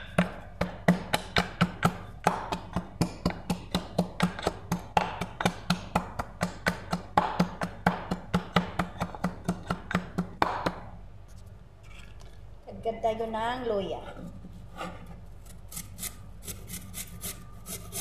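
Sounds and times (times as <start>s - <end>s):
pestle pounding in wooden mortar: 0.0s - 10.9s.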